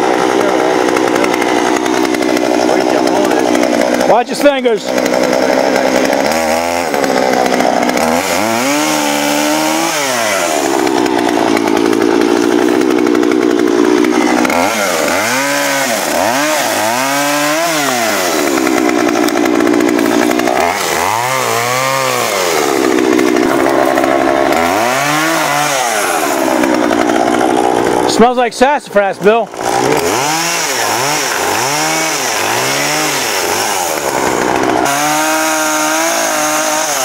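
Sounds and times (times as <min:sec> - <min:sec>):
chainsaw cutting wood: 0:00.0 - 0:37.0.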